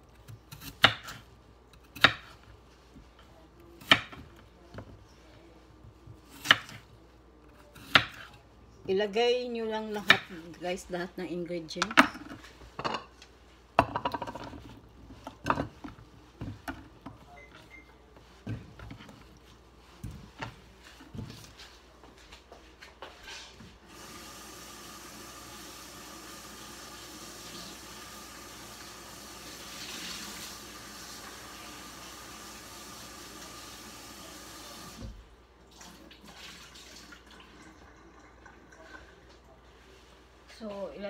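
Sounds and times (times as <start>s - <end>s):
kitchen tap running water: 23.9s - 39.2s.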